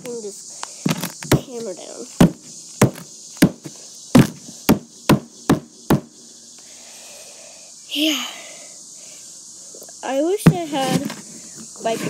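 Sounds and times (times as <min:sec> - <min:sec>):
hammer striking a box: 0:02.2 - 0:03.6, 0:04.2 - 0:06.1.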